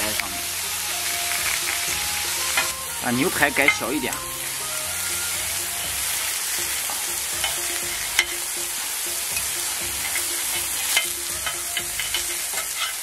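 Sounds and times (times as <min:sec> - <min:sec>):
steak sizzling on a griddle: 0:00.0 - 0:13.0
metal spatulas scraping and tapping: 0:09.4 - 0:13.0.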